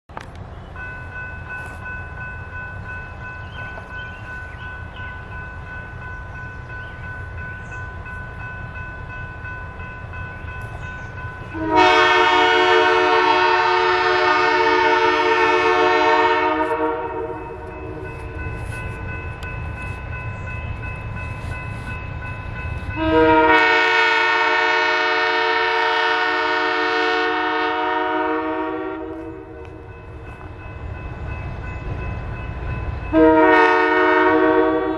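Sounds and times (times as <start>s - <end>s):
diesel locomotive rumbling: 0.1s - 34.9s
locomotive air horn blasts: 11.5s - 18.0s, 23.0s - 29.7s, 33.1s - 34.9s.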